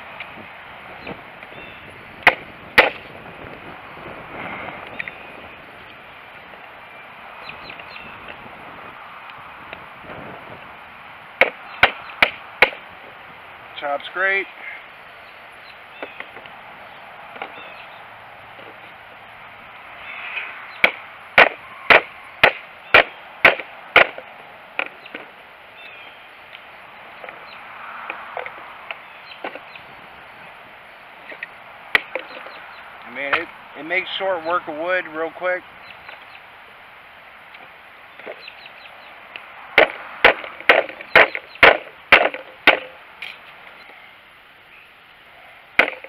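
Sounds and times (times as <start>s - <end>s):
knife chopping wood: 11.4s - 12.8s, 20.8s - 24.2s, 39.8s - 43.0s, 45.8s - 46.0s.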